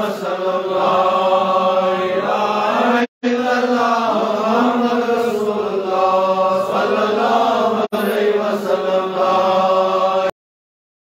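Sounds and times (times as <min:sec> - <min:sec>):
slow drawn out chanting: 0:00.0 - 0:10.4.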